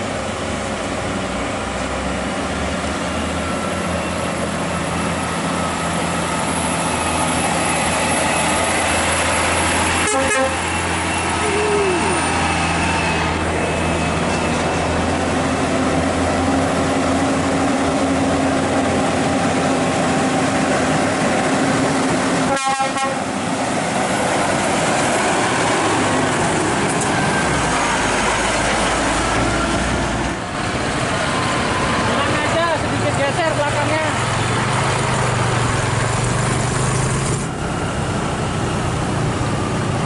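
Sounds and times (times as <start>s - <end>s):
diesel truck engines labouring: 0.0s - 40.0s
trailers rattling: 23.2s - 40.0s.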